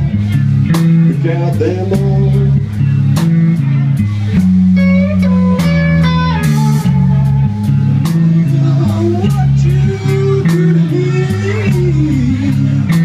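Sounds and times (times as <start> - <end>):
bass guitar: 0.0 - 13.0
electric guitar: 0.0 - 13.0.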